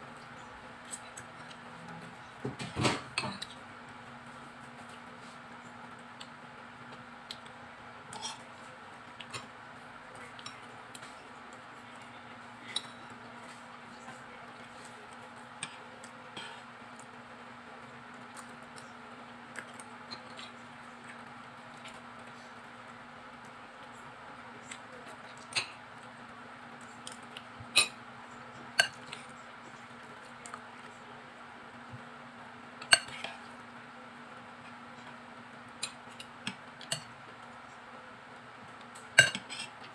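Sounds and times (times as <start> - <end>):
steady low hum: 0.0 - 39.9
cutlery clinking on a plate: 39.2 - 39.7.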